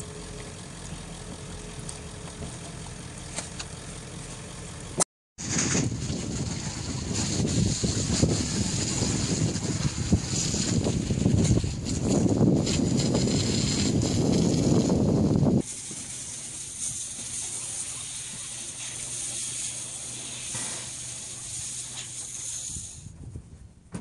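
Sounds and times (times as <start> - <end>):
wind buffeting microphone: 5.4 - 18.5, 22.6 - 24.0
steady hiss: 15.6 - 23.1.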